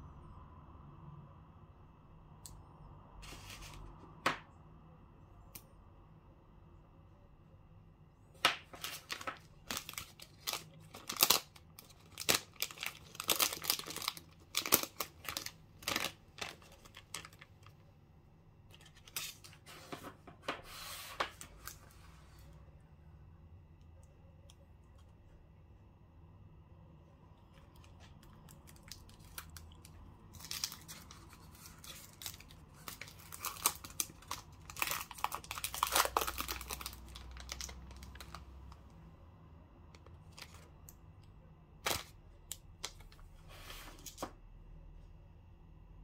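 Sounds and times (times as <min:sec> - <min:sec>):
candy wrappers crinkling: 0:08.4 - 0:17.8, 0:27.4 - 0:38.9, 0:40.0 - 0:41.0, 0:41.8 - 0:43.2.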